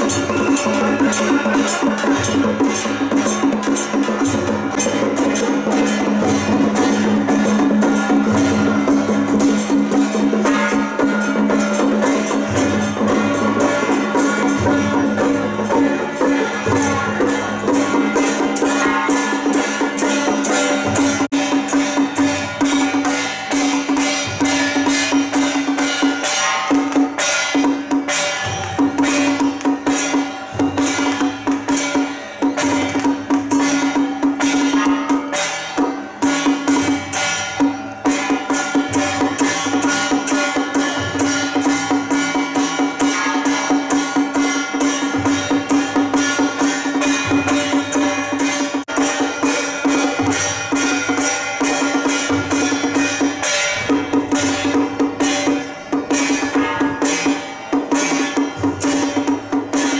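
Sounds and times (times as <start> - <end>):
drums: 0.0 - 59.9.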